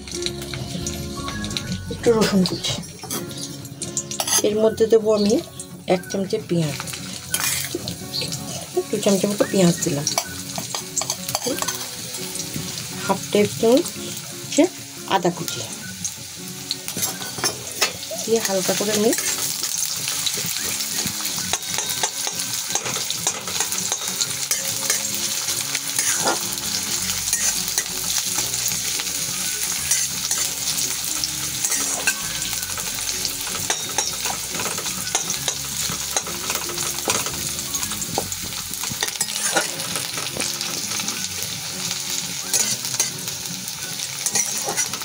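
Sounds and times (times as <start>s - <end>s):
onions sizzling in hot oil: 0.0s - 45.0s
spatula scraping a metal pan: 3.0s - 4.6s, 7.2s - 8.6s, 26.0s - 26.6s, 31.6s - 32.4s, 39.0s - 41.0s, 42.5s - 43.2s, 44.2s - 45.0s.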